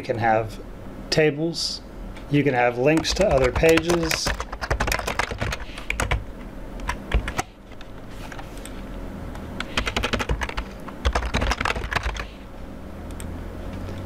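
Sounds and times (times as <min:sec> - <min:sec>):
typing on computer keyboard: 0:03.0 - 0:06.2, 0:09.6 - 0:12.3.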